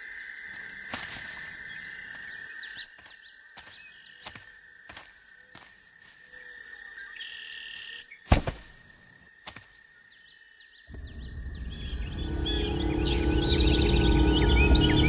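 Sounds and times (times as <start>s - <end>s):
birds chirping: 0.0s - 15.0s
high insect drone: 0.0s - 15.0s
low rumble: 10.9s - 15.0s.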